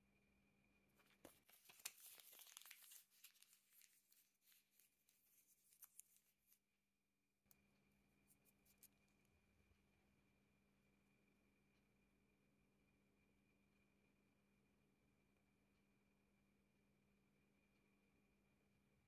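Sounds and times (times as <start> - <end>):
paper being crumpled: 1.0 - 6.6.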